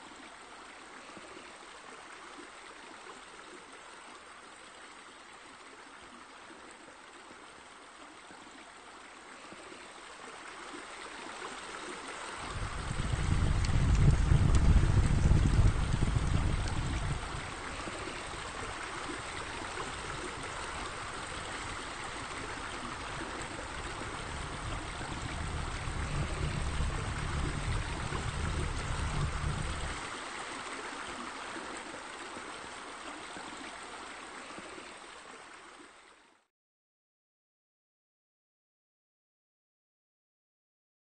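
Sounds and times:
fountain water trickling and splashing: 0:00.0 - 0:36.5
low rumble: 0:12.5 - 0:17.6, 0:23.0 - 0:30.0.

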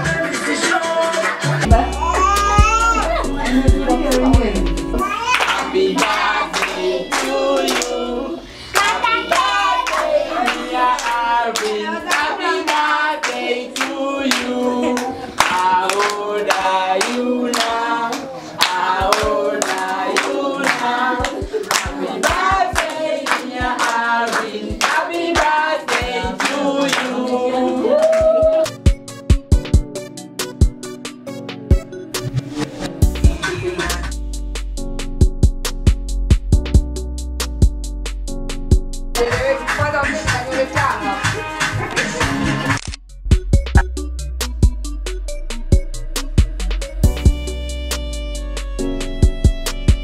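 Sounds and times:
children singing together: 0:05.0 - 0:27.9
hands clapping in time: 0:08.8 - 0:27.2.

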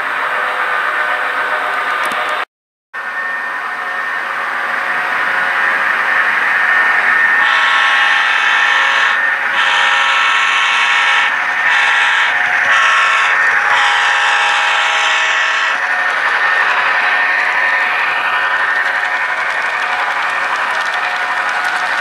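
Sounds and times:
locomotive running hum: 0:00.0 - 0:22.0
model locomotive horn blasts: 0:07.4 - 0:15.8.

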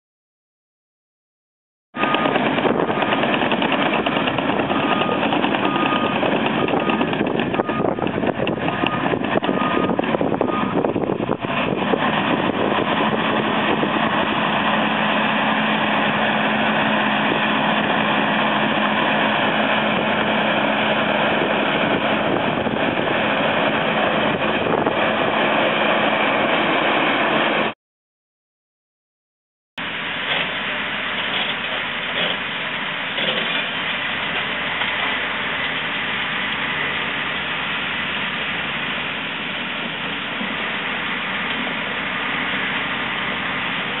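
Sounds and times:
bulldozer diesel engine and tracks: 0:01.9 - 0:27.8, 0:29.8 - 0:44.0
reversing alarm beeping: 0:02.0 - 0:03.1, 0:04.2 - 0:10.9.

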